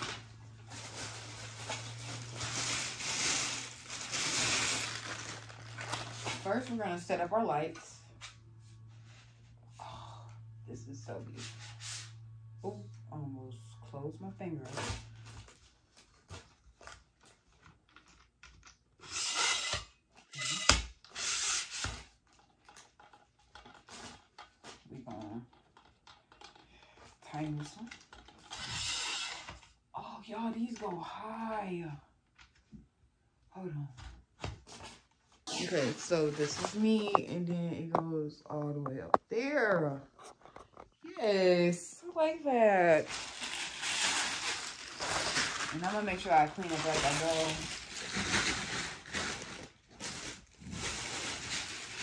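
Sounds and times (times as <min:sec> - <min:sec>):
plastic wrapping rustling: 0:00.0 - 0:07.2, 0:14.6 - 0:20.7, 0:21.5 - 0:29.0, 0:34.6 - 0:37.5, 0:42.2 - 0:52.0
steady low hum: 0:00.0 - 0:15.9.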